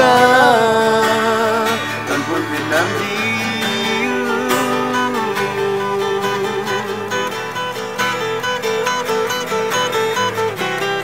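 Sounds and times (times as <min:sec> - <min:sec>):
person singing: 0:00.0 - 0:08.8
acoustic guitar playing: 0:00.0 - 0:11.0.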